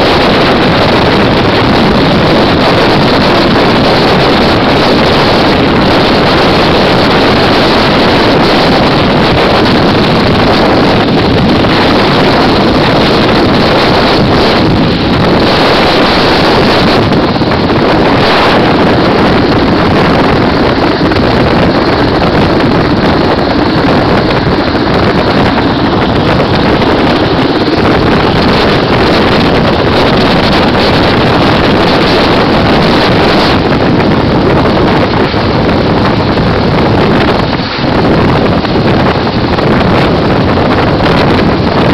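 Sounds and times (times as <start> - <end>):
helicopter engine and rotor: 0.0 - 41.9
rotor downwash wind on microphone: 0.0 - 41.9.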